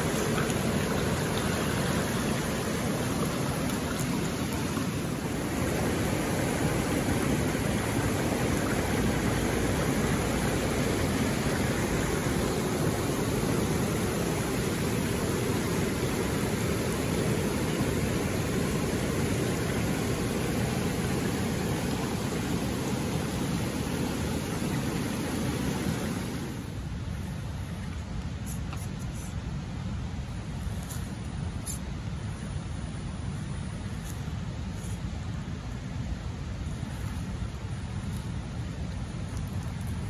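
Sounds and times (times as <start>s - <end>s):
water rushing over rocks: 0.0s - 26.8s.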